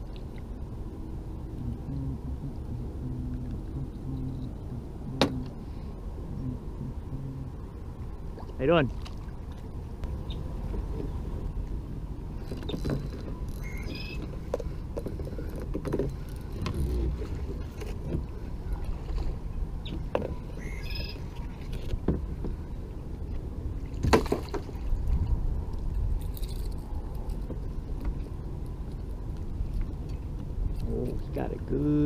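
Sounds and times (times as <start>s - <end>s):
steady low rumble: 0.0s - 32.0s
water sloshing against kayak hull: 12.4s - 25.4s.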